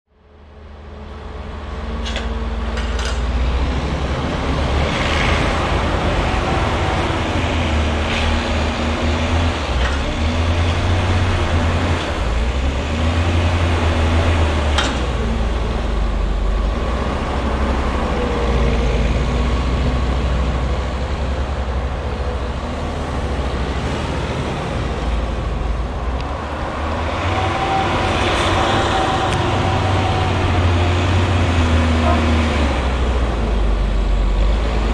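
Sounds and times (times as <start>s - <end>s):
diesel engine under load: 0.1s - 34.9s.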